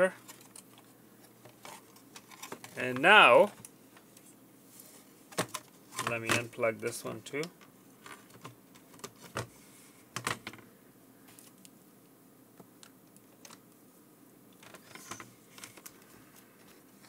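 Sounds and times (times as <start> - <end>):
plastic parts clicking and knocking: 1.4 - 3.7, 10.2 - 10.6.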